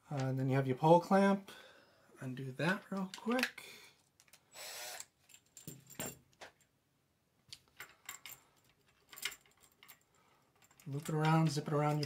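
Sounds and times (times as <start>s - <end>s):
cordless drill running: 4.6s - 5.1s
metal clamp band clinking: 7.5s - 12.0s.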